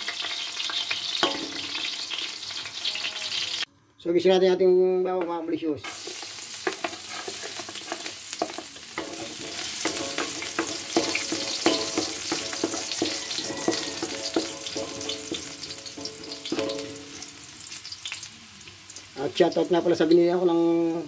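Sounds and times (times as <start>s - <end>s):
spatula scraping and knocking wok: 0.0s - 2.8s, 5.2s - 17.9s
garlic sizzling in hot oil: 0.0s - 3.7s, 5.8s - 21.0s
wok ringing: 0.2s - 3.6s, 5.8s - 18.2s.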